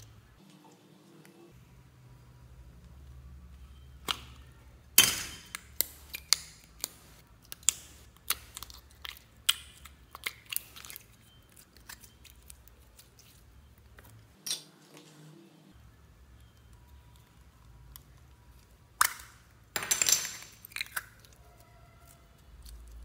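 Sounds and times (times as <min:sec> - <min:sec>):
slime clicks and crackles: 0:05.6 - 0:14.6, 0:16.6 - 0:23.0.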